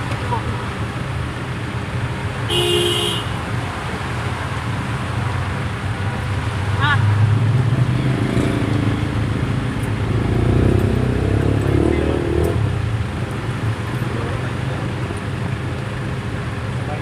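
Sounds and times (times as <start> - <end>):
vehicle engines humming: 0.0 - 17.0
engine revving: 6.2 - 13.0.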